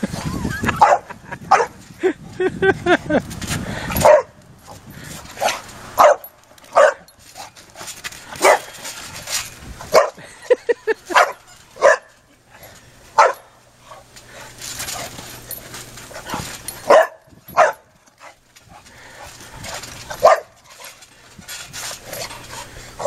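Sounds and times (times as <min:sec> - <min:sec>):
puppy barking: 0:00.8 - 0:01.7, 0:05.4 - 0:07.1, 0:08.4 - 0:08.7, 0:09.9 - 0:10.2, 0:11.1 - 0:12.1, 0:16.9 - 0:17.8, 0:20.2 - 0:20.6.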